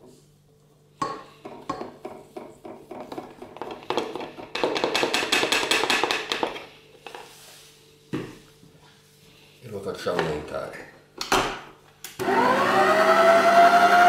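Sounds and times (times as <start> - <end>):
spatula knocking on plastic bowl: 3.9 - 6.6.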